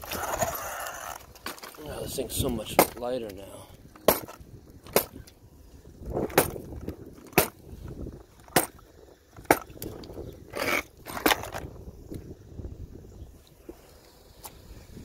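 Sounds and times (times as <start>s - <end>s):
toy truck wheels clacking: 0.0s - 1.8s.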